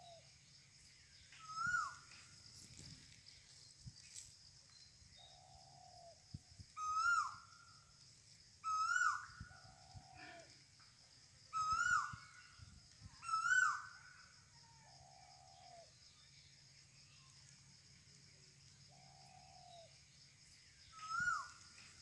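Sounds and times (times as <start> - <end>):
bird calling: 1.3 - 2.1, 6.8 - 7.5, 8.6 - 10.6, 11.5 - 14.2, 20.9 - 21.7.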